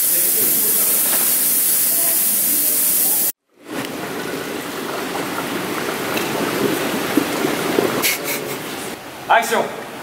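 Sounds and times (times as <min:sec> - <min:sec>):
fog machine hissing: 0:00.0 - 0:03.4.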